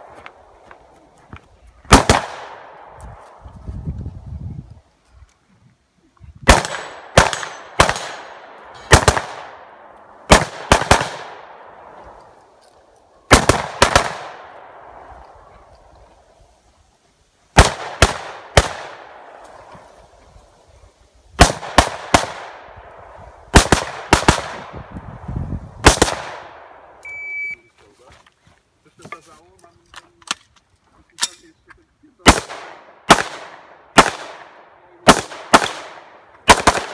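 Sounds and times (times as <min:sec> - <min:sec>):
rifle shots with echo: 0:01.9 - 0:03.0, 0:06.4 - 0:12.2, 0:13.2 - 0:15.4, 0:17.6 - 0:19.7, 0:21.4 - 0:24.8, 0:25.8 - 0:27.0, 0:32.2 - 0:36.9.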